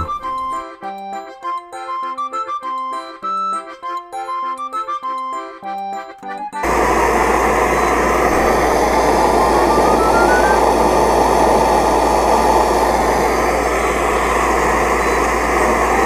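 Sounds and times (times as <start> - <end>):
alcohol stove flame roaring: 6.6 - 16.0
faint rising tone: 6.6 - 16.0.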